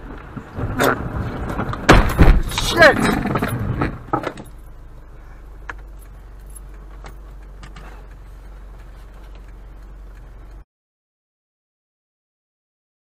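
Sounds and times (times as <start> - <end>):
car sliding: 0.0 - 9.8
car engine idling: 0.0 - 10.6
faint light clicks and jingles: 5.6 - 10.6.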